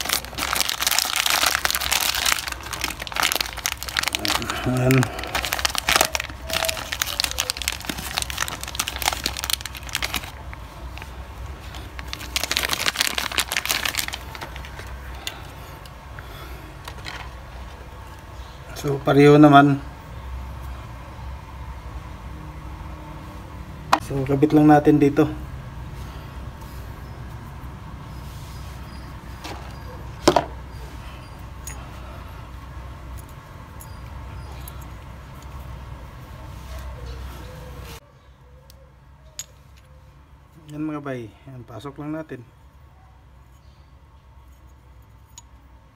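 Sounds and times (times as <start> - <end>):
plastic bag crinkling: 0.0 - 15.0
small metal clicks and clinks: 44.5 - 45.6.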